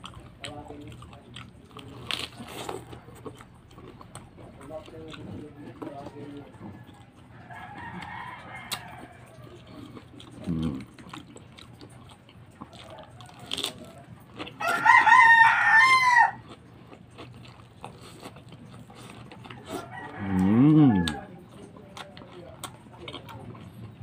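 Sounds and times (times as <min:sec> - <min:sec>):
man chewing crunchy leaves: 0:00.0 - 0:24.0
rooster crowing: 0:06.6 - 0:09.8, 0:14.6 - 0:16.4, 0:19.6 - 0:21.3.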